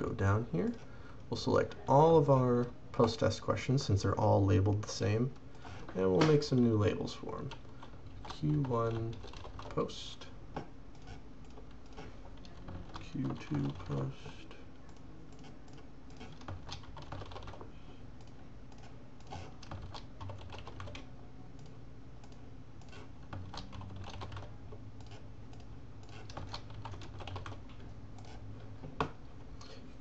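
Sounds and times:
keyboard typing: 7.4s - 10.0s, 10.6s - 28.4s.

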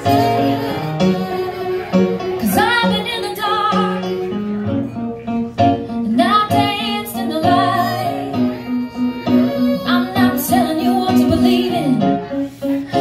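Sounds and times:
violin: 0.0s - 4.4s, 6.5s - 12.3s
woman singing: 2.4s - 4.2s, 6.0s - 12.2s.

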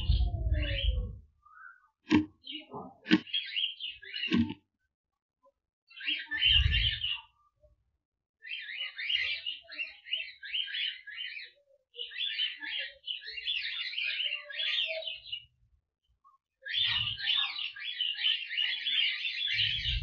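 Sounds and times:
cockatiels chirping and warbling: 8.4s - 15.4s, 16.6s - 20.0s.

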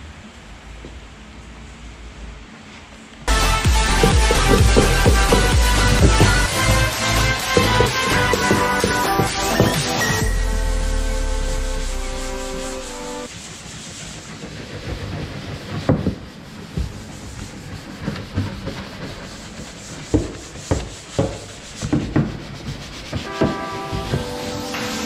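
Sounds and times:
background music: 3.3s - 13.3s, 23.2s - 25.0s
brushes scrubbing wet hull: 3.3s - 25.0s
knocks and clatter: 3.6s - 10.2s.

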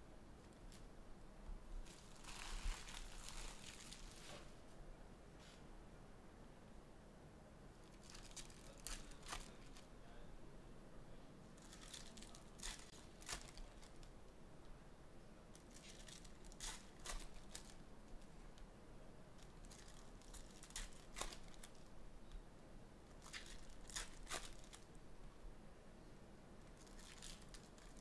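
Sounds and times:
cards rustling: 1.8s - 4.5s, 7.8s - 9.9s, 11.6s - 14.1s, 19.4s - 21.9s, 23.2s - 24.9s
wrapper crinkling: 1.8s - 4.5s, 7.8s - 9.8s, 11.6s - 14.1s, 15.6s - 17.8s, 19.4s - 21.9s, 23.1s - 24.9s, 26.7s - 28.0s.

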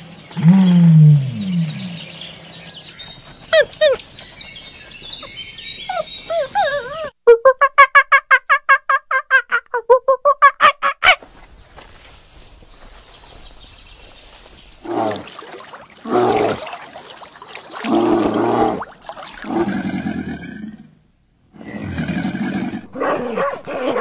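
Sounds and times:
bear growling: 14.8s - 17.0s, 17.8s - 21.0s.

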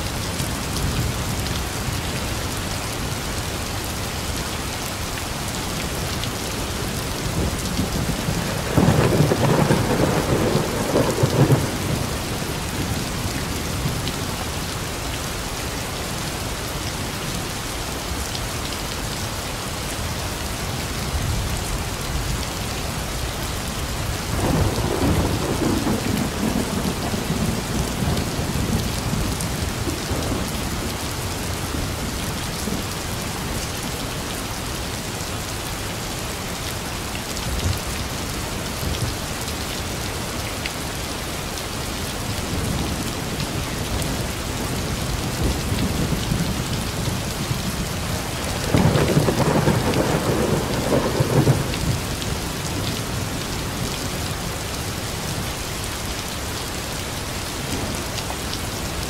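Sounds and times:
heavy rain: 0.0s - 59.0s
thunder rumbling: 7.2s - 14.0s, 24.3s - 30.8s, 44.7s - 52.8s.

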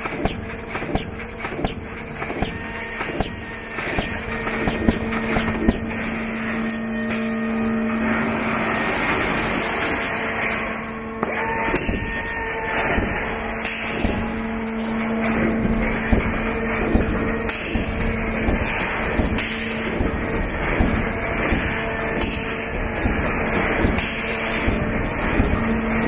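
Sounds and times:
sharp knocks: 0.0s - 5.9s, 11.7s - 13.3s, 13.9s - 14.4s, 15.6s - 25.7s
welding machine humming: 0.0s - 26.0s.

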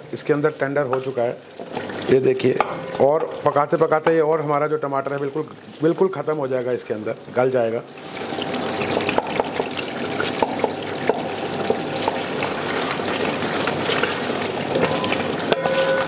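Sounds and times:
curry sizzling and bubbling: 0.0s - 16.0s
wooden spatula stirring: 0.7s - 6.7s.

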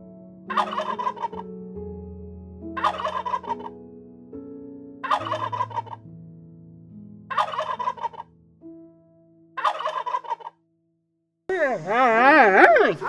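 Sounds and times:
turkey gobbling: 0.5s - 1.4s, 2.8s - 3.7s, 5.0s - 6.0s, 7.3s - 8.3s, 9.6s - 10.6s.

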